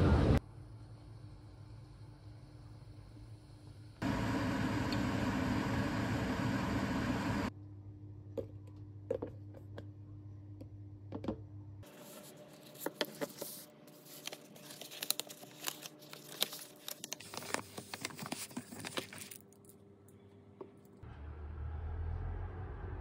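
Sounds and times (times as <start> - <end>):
foil wrapper crinkling: 12.7 - 19.6
low hum: 19.6 - 23.0.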